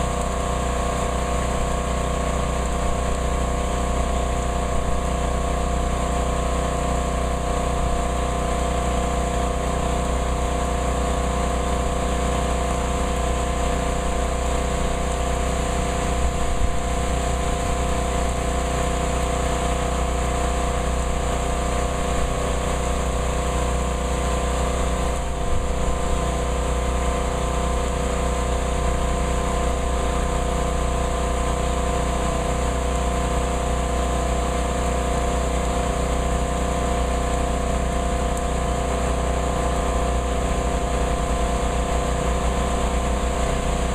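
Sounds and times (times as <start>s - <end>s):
constant motor hum: 0.0s - 43.9s
steady rainfall: 0.0s - 43.9s.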